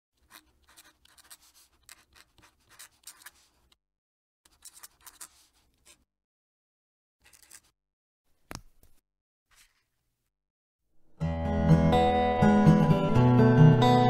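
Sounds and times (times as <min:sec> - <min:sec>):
pen nib scratching on paper: 0:00.2 - 0:03.8, 0:04.5 - 0:06.1.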